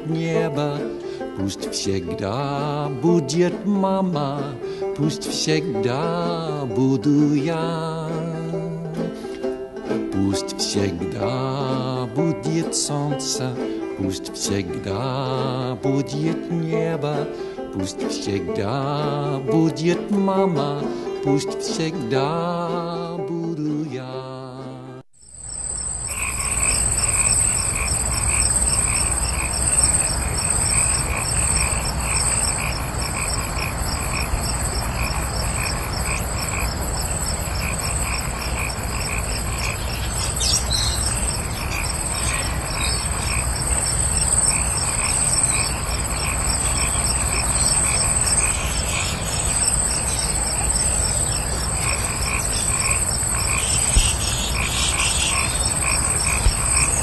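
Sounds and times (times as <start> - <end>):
frogs croaking: 25.2 - 57.0
high-pitched insect trill: 25.2 - 57.0.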